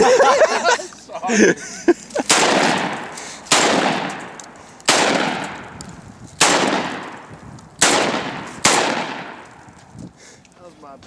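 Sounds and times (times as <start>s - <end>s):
shotgun shots: 2.2s - 5.8s, 6.4s - 9.5s.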